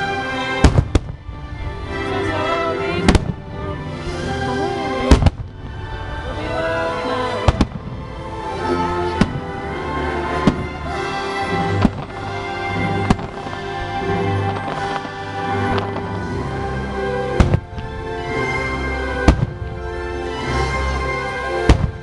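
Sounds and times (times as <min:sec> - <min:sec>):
fireworks show music: 0:00.0 - 0:22.0
fireworks bangs: 0:00.6 - 0:01.4, 0:05.0 - 0:19.8, 0:21.6 - 0:22.0.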